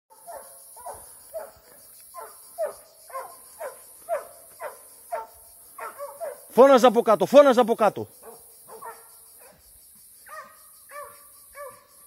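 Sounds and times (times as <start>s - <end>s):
hound barking: 0.1s - 6.5s, 8.2s - 9.6s, 10.2s - 12.0s.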